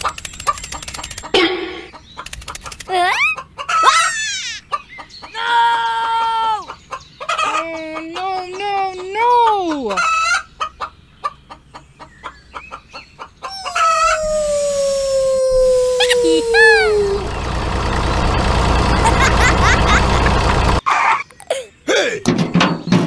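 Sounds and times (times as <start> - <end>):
rooster crowing: 13.5 - 17.5.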